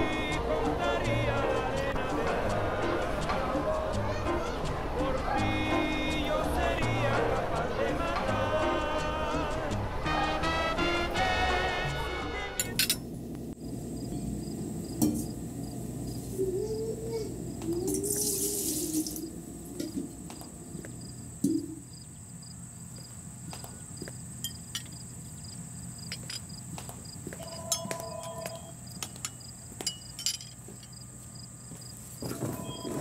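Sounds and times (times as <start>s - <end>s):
pots and lids clinking: 12.6s - 13.1s, 29.2s - 30.6s.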